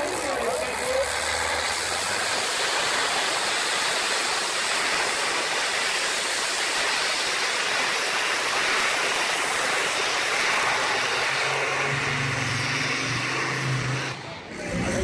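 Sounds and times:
tractor engine roaring: 0.0s - 15.0s.

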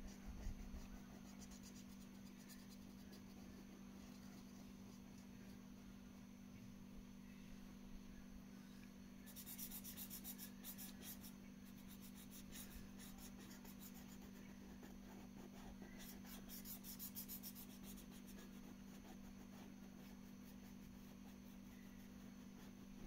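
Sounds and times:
low steady hum: 0.0s - 23.0s
pen scribbling on paper: 9.3s - 23.0s.

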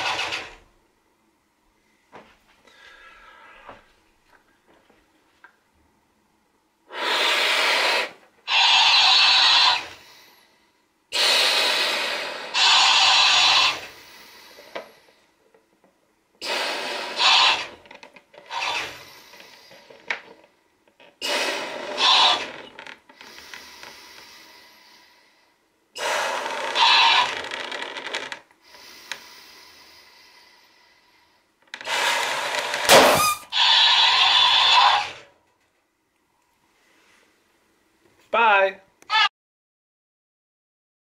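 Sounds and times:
breaths blown into balloon: 6.9s - 10.1s, 11.1s - 14.6s, 16.4s - 17.7s, 21.2s - 22.6s, 26.0s - 27.6s
talking toy pitched-up playback: 39.1s - 39.3s.

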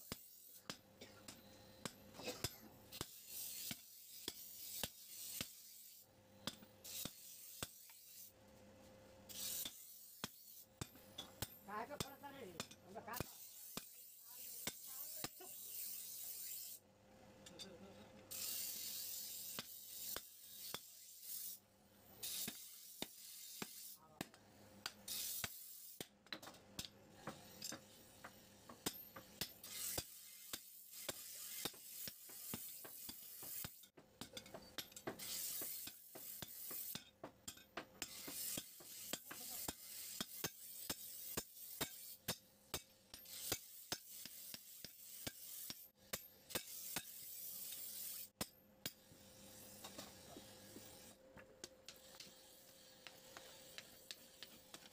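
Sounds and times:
short bursts of hiss: 9.3s - 10.6s, 18.3s - 21.6s, 25.0s - 26.0s, 29.6s - 33.8s, 35.2s - 37.0s
hammer striking metal on anvil: 9.6s - 14.0s, 26.3s - 47.2s.

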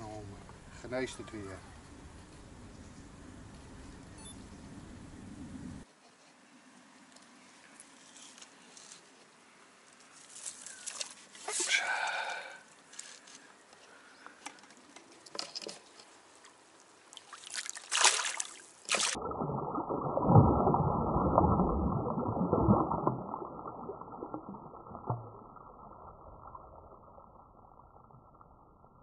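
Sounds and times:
water splashing and sloshing: 16.4s - 29.0s.

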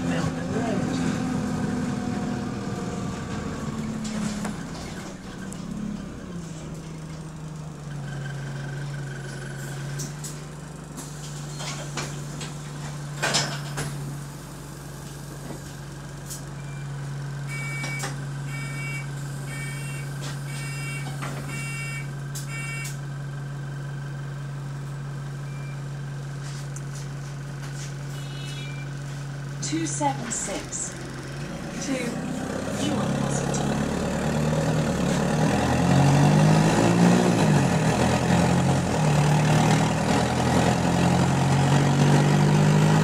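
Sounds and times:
bus engine drone: 0.0s - 43.0s
electronic beeps: 17.5s - 22.9s, 28.2s - 28.9s.

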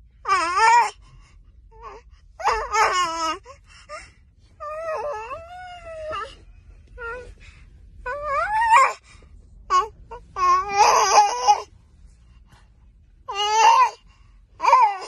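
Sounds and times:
baby wailing: 9.7s - 11.6s, 14.6s - 15.0s.

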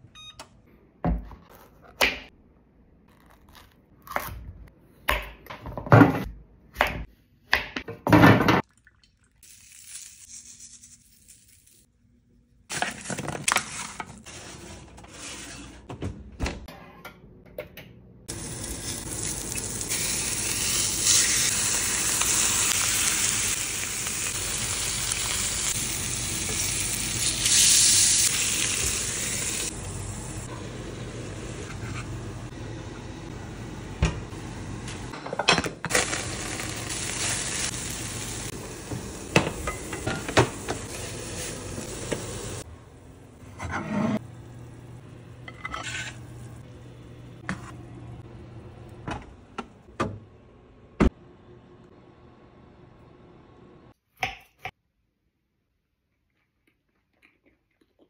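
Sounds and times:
kitchen knocks and clatters: 5.1s - 8.7s, 35.1s - 35.9s, 38.9s - 40.9s
chops searing in hot oil: 18.3s - 30.5s, 35.9s - 42.7s.

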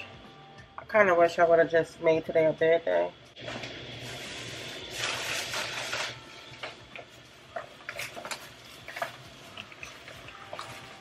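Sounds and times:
paper bag rustling and crinkling: 3.4s - 6.8s.

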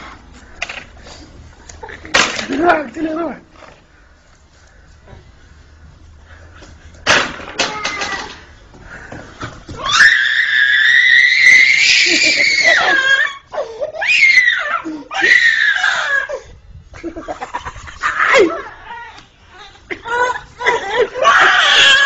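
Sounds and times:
toddler screaming and crying: 7.6s - 8.4s, 9.8s - 16.4s, 18.1s - 22.0s.

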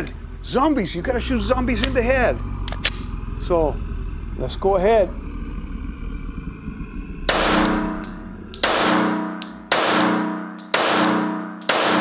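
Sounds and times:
pistol shots with ringing tail: 7.3s - 12.0s.

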